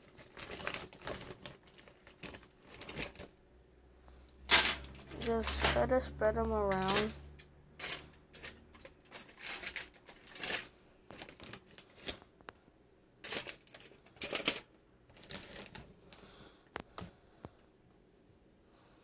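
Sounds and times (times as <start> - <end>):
aluminium foil crinkling: 0.0 - 3.4, 4.4 - 6.0, 6.7 - 12.4, 13.2 - 16.0.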